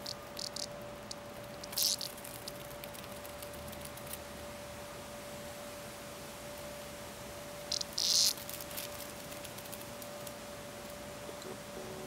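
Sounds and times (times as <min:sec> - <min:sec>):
faint ticks: 0:00.0 - 0:04.2
cicada buzzing: 0:00.0 - 0:04.4, 0:07.4 - 0:12.0.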